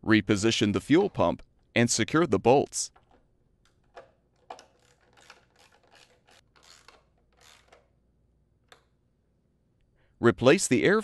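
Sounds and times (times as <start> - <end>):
wrench click: 3.0 - 7.9
socket wrench ratcheting: 3.0 - 8.0.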